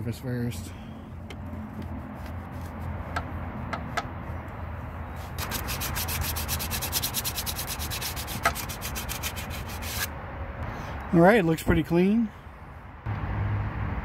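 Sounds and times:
hand sanding metal: 0:05.2 - 0:10.1.

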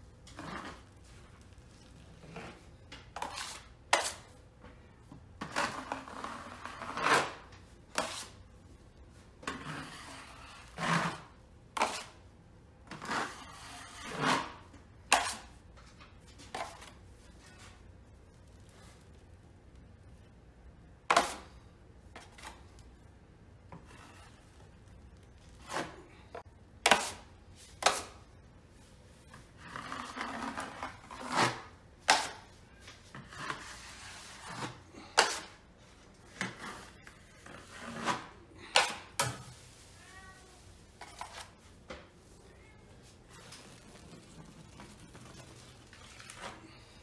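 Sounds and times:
knife scraping compound: 0:00.2 - 0:01.1, 0:01.9 - 0:04.4, 0:05.4 - 0:08.4, 0:09.4 - 0:12.2, 0:12.8 - 0:15.6, 0:16.4 - 0:17.8, 0:21.1 - 0:22.8, 0:23.7 - 0:24.8, 0:25.5 - 0:28.3, 0:29.3 - 0:40.0, 0:40.7 - 0:42.4
cat meowing faintly: 0:39.9 - 0:40.8.

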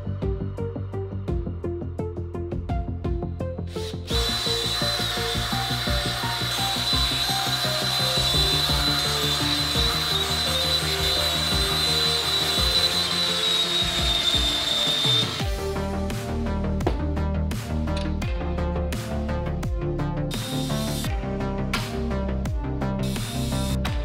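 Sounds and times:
cordless drill boring into metal: 0:03.7 - 0:15.6.

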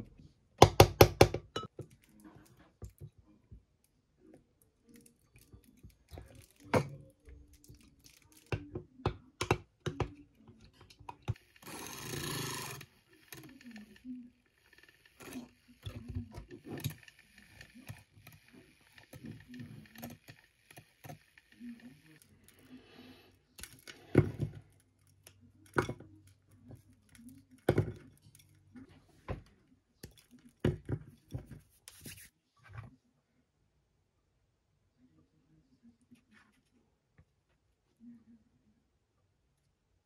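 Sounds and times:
handheld milk frother whirring: 0:10.8 - 0:25.8.

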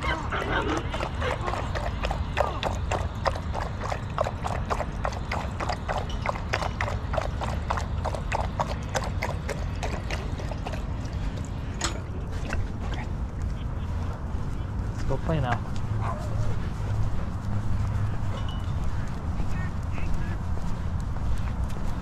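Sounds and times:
dog lapping water from metal bowl: 0:00.0 - 0:13.0.

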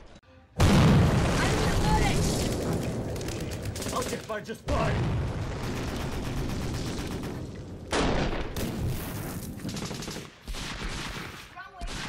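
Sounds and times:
rapid gunfire: 0:05.6 - 0:12.0.

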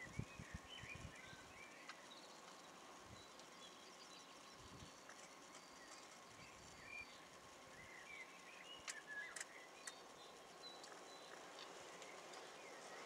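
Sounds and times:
faint outdoor ambience: 0:00.0 - 0:13.0.

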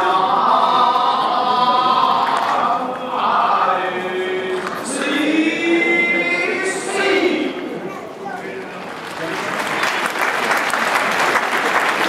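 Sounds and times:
group of voices chanting: 0:00.0 - 0:07.8.

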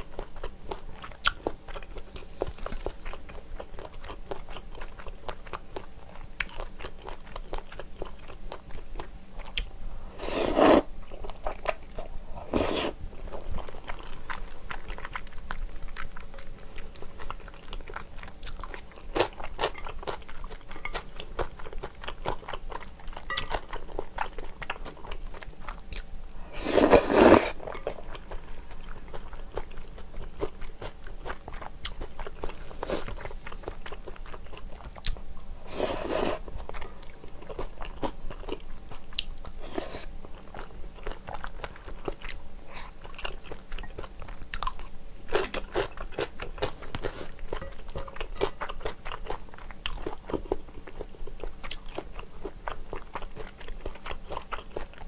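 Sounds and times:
person chewing food close up: 0:00.0 - 0:55.0.

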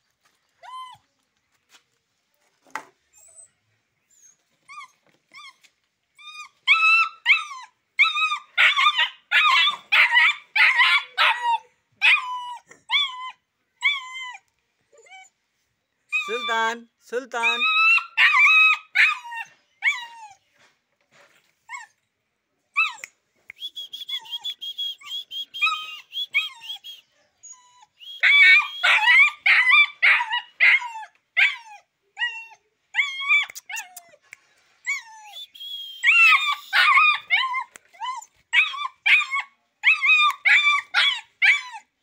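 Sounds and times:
puppy yapping: 0:28.2 - 0:31.8, 0:36.0 - 0:41.9.

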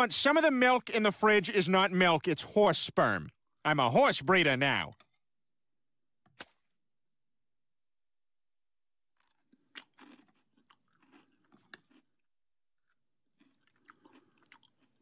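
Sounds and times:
crunchy cereal being chewed: 0:09.1 - 0:15.0.

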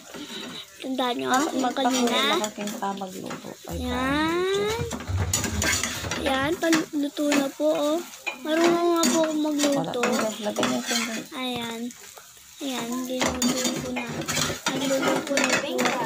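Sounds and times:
metal spatula scraping frying pan: 0:01.3 - 0:11.4, 0:13.0 - 0:16.0
high voice with drawn-out tones: 0:03.7 - 0:05.2, 0:06.1 - 0:11.9, 0:12.6 - 0:16.0.

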